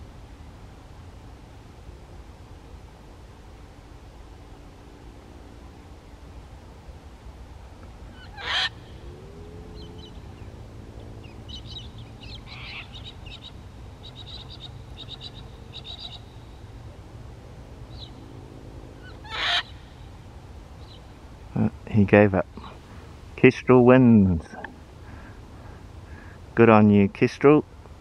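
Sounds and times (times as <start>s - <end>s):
low steady rumble: 0.0s - 28.0s
cockatoo screeching: 8.1s - 9.1s, 12.5s - 13.0s, 19.0s - 19.8s
bird chirps and trills: 8.1s - 16.8s, 17.8s - 18.3s, 19.0s - 20.2s, 20.8s - 21.2s.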